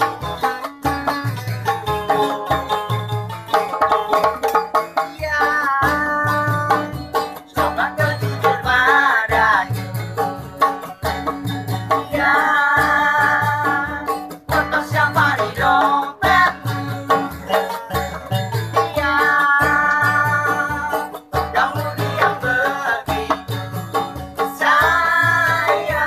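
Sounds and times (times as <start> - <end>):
acoustic guitars strummed: 0.0 - 26.0
hand-beaten plastic pipe drum: 0.0 - 26.0
man singing long notes: 5.2 - 7.0, 12.1 - 23.6.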